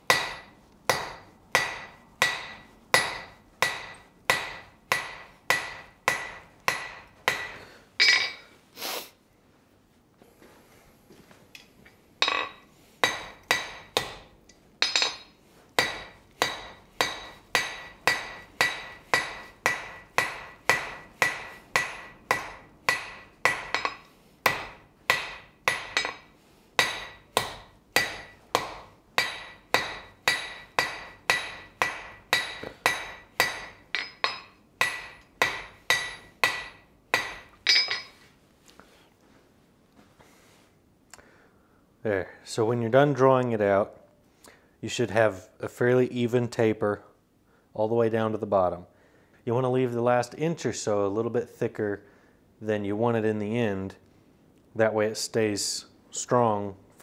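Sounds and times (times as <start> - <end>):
hammer striking steel on anvil: 0.1 - 8.5, 12.2 - 38.2.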